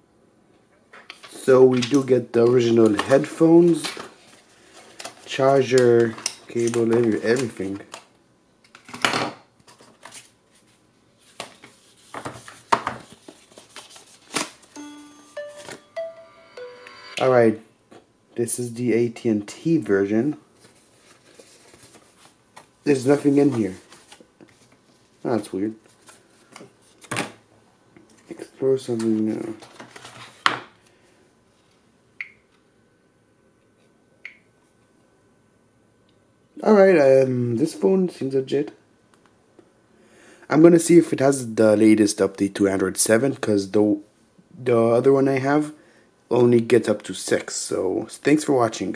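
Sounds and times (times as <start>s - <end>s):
phone electronic tones: 14.8s - 17.4s
short high beeps: 14.8s - 17.4s.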